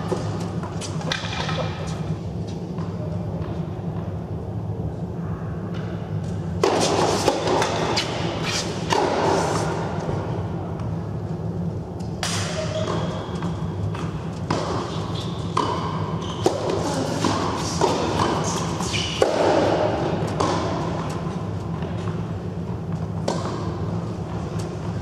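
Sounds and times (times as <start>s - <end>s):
tennis racket strikes: 6.6s - 9.8s, 13.9s - 21.2s
tennis ball bounces: 12.2s - 22.2s, 22.9s - 24.7s.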